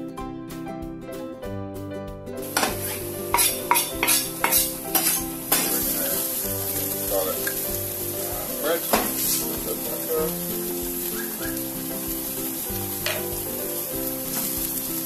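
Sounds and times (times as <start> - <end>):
food sizzling in frying pan: 2.4 - 15.0
spatula scraping pan: 2.6 - 7.6.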